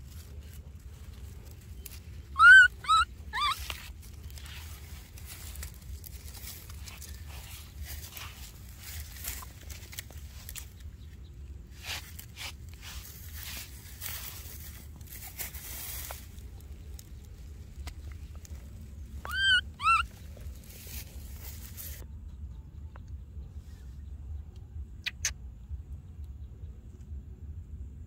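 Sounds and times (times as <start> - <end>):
rustles on dry ground and grass: 0.0 - 22.6
baby macaque high-pitched calls: 2.3 - 3.9, 19.2 - 20.2.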